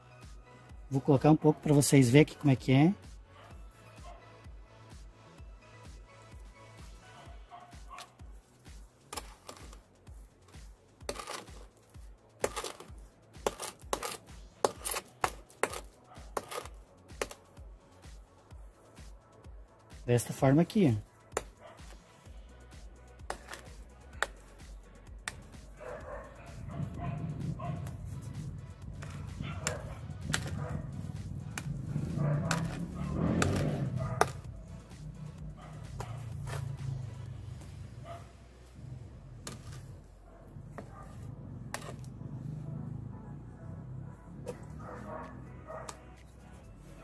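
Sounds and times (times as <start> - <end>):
trowel scraping and tapping: 7.8 - 17.6, 23.2 - 37.8, 39.4 - 40.1, 40.7 - 42.2
trowel clicking on tile: 12.4 - 17.4.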